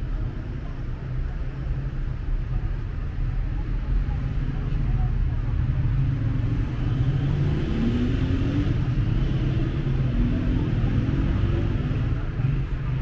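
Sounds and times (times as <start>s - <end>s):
rumble of passing cars: 0.0s - 13.0s.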